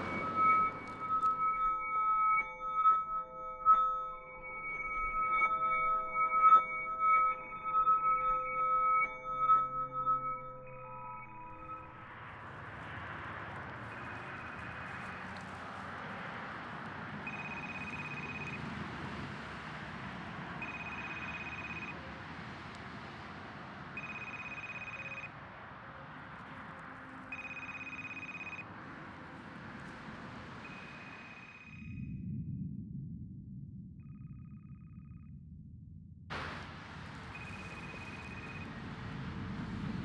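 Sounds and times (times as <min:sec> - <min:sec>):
high electronic beep: 0:00.0 - 0:12.9, 0:17.3 - 0:18.6, 0:20.6 - 0:22.0, 0:24.0 - 0:25.3, 0:27.3 - 0:28.6, 0:30.6 - 0:32.0, 0:37.3 - 0:38.7
steady noise: 0:00.0 - 0:22.0, 0:36.3 - 0:40.0.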